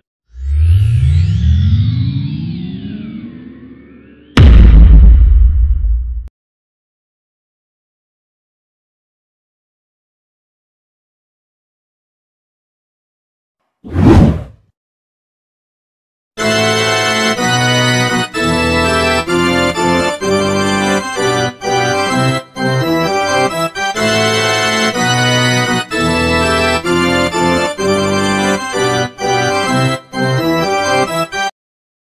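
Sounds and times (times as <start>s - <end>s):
instrumental music with held chords: 16.4s - 31.5s.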